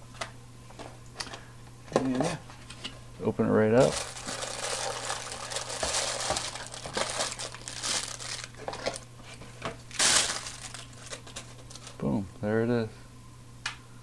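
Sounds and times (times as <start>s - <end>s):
plastic bag crinkling: 3.8s - 9.1s, 9.9s - 12.0s.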